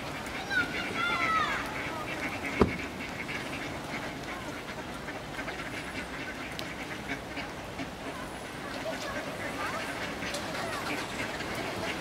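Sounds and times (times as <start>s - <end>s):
ducks quacking: 0.0s - 12.0s
sharp thump: 2.6s - 2.9s.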